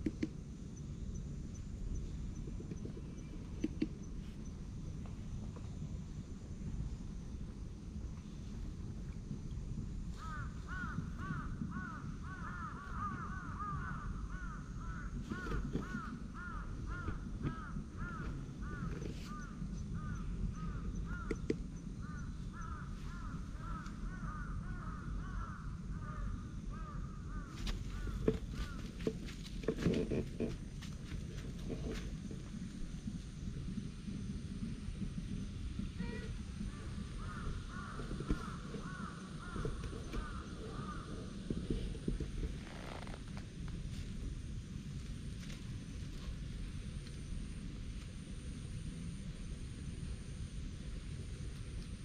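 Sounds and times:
sharp clicks and knocks: 0.0s - 0.4s, 2.6s - 4.1s.

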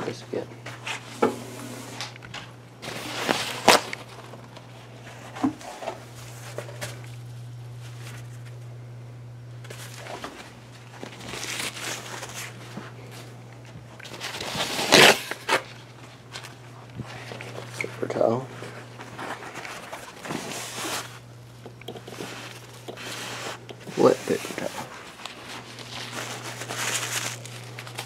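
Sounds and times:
steady low hum: 0.0s - 28.0s
handling rustling and scuffing: 2.8s - 8.6s, 9.6s - 21.3s, 21.9s - 28.0s.

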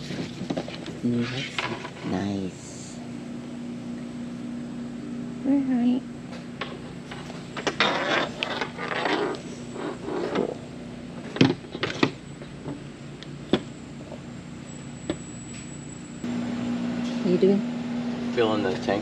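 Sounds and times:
steady low hum: 0.0s - 19.0s
headset rustling and scraping: 7.1s - 10.6s.

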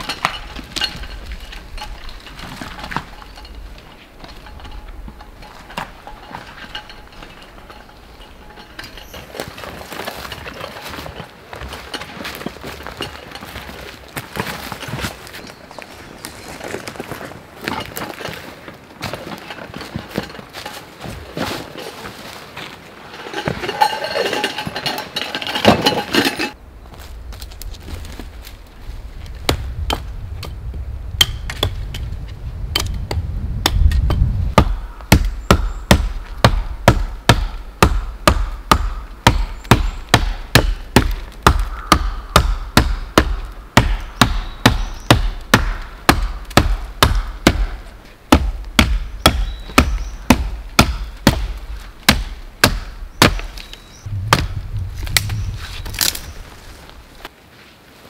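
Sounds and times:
wood chopping strikes: 32.7s - 56.3s.

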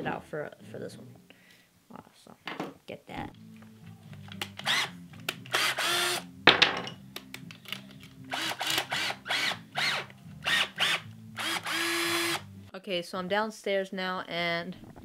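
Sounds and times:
cordless drill running: 4.6s - 4.9s, 5.5s - 6.3s, 8.3s - 12.5s.

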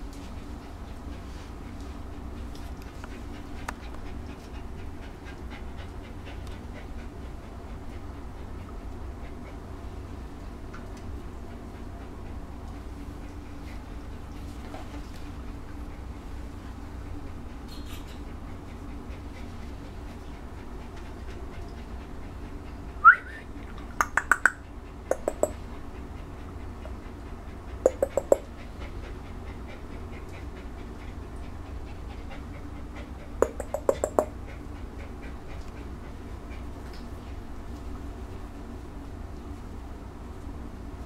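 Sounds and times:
steady low hum: 0.0s - 41.0s
sharp clicks: 24.0s - 25.6s.

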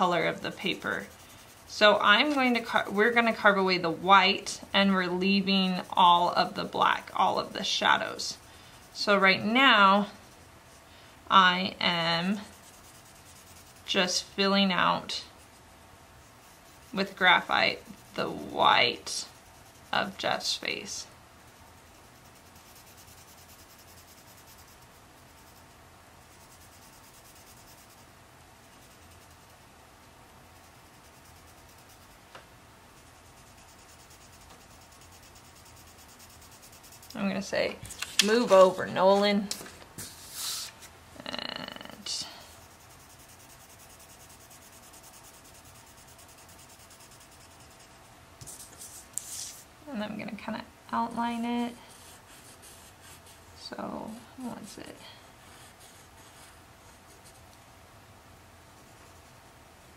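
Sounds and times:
pencil scribbling on paper: 0.0s - 10.8s, 11.4s - 28.1s, 28.7s - 29.6s, 30.5s - 32.2s, 32.9s - 39.3s, 42.0s - 49.6s, 51.9s - 53.5s, 55.4s - 57.4s.

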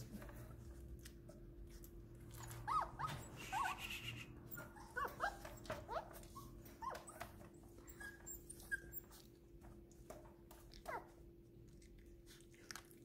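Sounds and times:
puppy whimpering: 2.3s - 9.4s.

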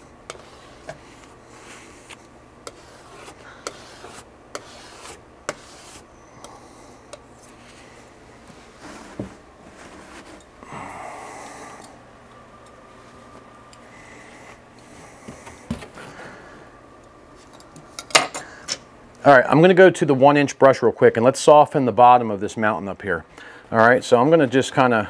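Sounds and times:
scraping paint off palette: 0.3s - 6.1s.

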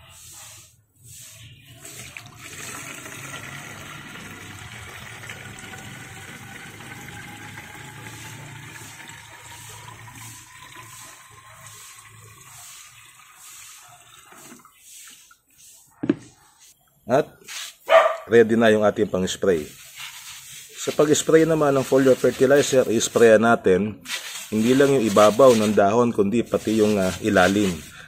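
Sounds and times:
liquid pouring into a plastic tank: 1.8s - 15.4s.

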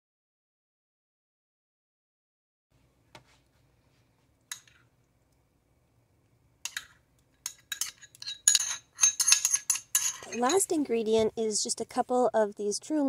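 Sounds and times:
metal utensil scraping glass bowl: 6.7s - 12.1s.

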